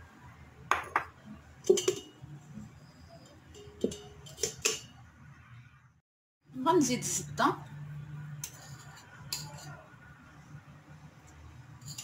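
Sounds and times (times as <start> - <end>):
sieve clinking against metal bowl: 1.6 - 2.2, 3.2 - 4.9.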